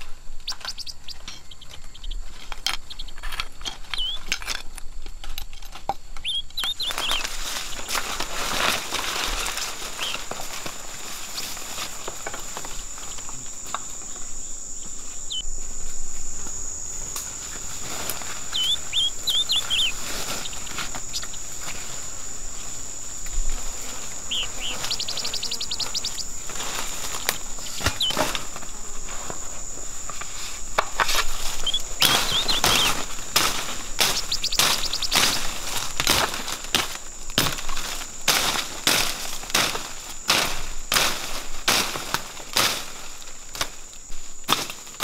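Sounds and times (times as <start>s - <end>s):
jungle insects droning: 0.0s - 45.0s
bird chirping: 0.4s - 4.3s, 6.2s - 8.0s, 10.0s - 10.3s, 14.0s - 15.5s, 18.4s - 21.6s, 24.2s - 26.4s, 27.1s - 28.3s, 31.4s - 33.2s, 33.9s - 35.6s
footsteps in dry leaves: 6.7s - 45.0s.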